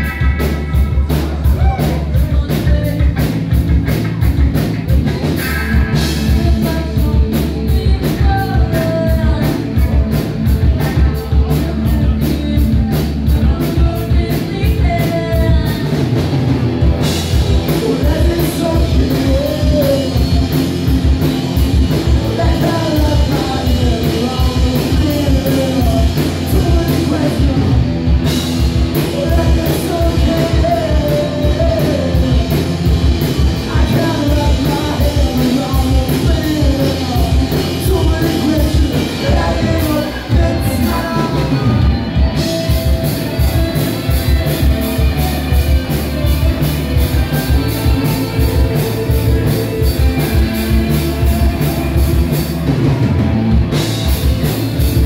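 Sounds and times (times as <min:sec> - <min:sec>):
rock band playing live: 0:00.0 - 0:55.0
lead vocals singing: 0:17.5 - 0:28.4, 0:29.0 - 0:42.8.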